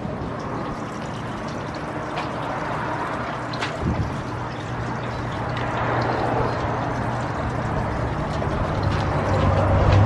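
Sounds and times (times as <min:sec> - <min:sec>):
road noise hiss: 0:00.0 - 0:10.0
vehicle engine hum: 0:00.0 - 0:10.0.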